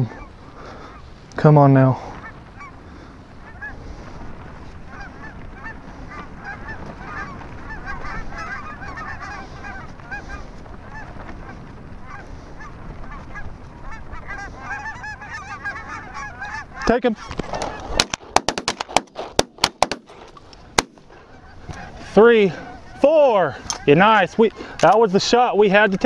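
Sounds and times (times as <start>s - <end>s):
wind rumble on microphone: 0.0s - 18.0s
geese honking: 0.0s - 26.0s.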